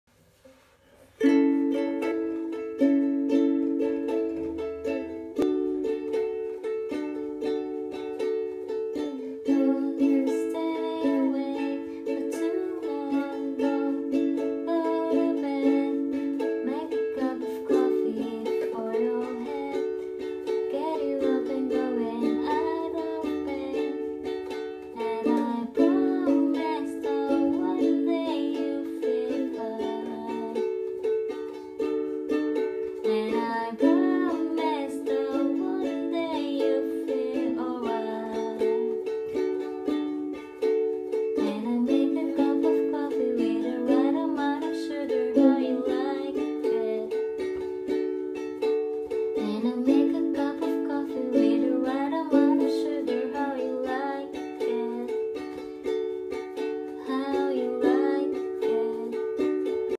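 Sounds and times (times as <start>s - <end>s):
ukulele strumming chords: 0.2s - 59.9s
woman singing: 8.9s - 30.8s, 32.9s - 39.4s, 41.3s - 47.5s, 49.3s - 55.6s, 56.6s - 59.9s.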